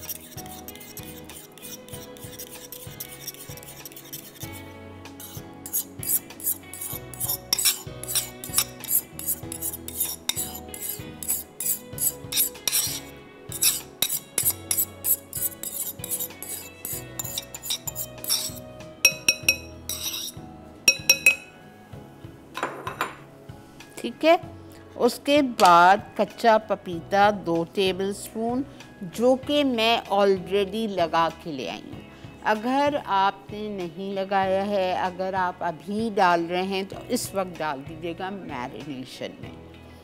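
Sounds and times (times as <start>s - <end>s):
spoon scraping and tapping bowl: 0.0s - 4.6s, 5.2s - 21.6s
crockery clinking: 16.8s - 20.3s, 20.9s - 21.6s, 22.6s - 23.2s.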